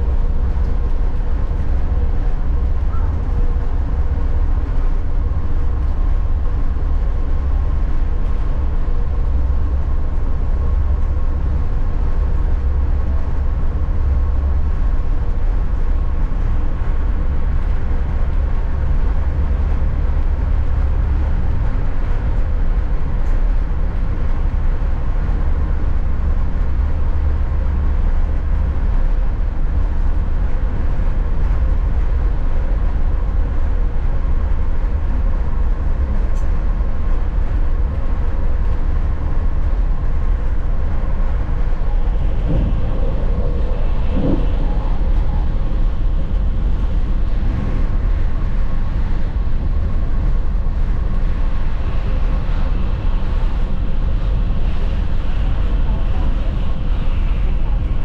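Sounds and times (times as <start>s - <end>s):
faint constant hum: 0.0s - 58.0s
train rumbling: 0.0s - 58.0s.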